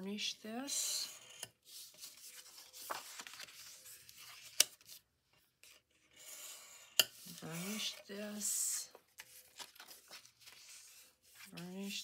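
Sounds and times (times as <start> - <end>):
bone folder scraping paper: 9.2 - 11.9.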